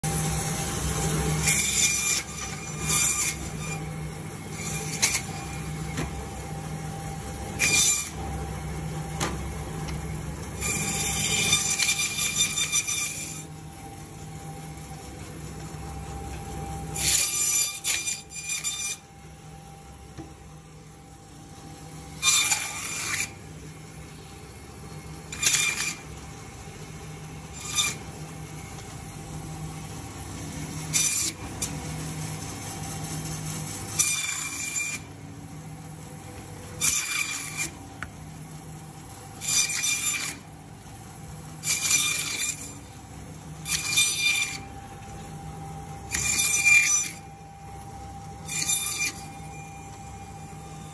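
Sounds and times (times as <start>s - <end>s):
bandsaw blade screeching through fish: 4.6s - 5.5s, 10.6s - 13.5s, 17.0s - 19.0s, 22.2s - 23.4s, 25.3s - 26.1s, 27.6s - 28.0s, 36.8s - 37.8s, 39.4s - 40.4s, 41.6s - 42.8s, 43.6s - 44.6s, 46.1s - 47.3s, 48.4s - 49.8s.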